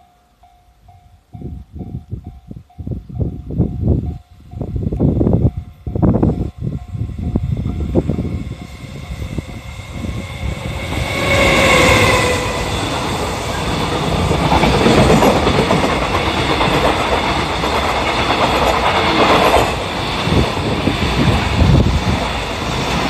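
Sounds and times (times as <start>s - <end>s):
rush of passing wagons: 7.5s - 23.0s
train wheels clacking on rail joints: 10.8s - 23.0s.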